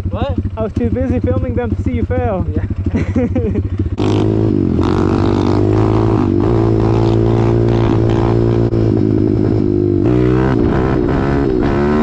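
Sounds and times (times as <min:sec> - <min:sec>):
motorbike engine running: 0:00.0 - 0:12.0.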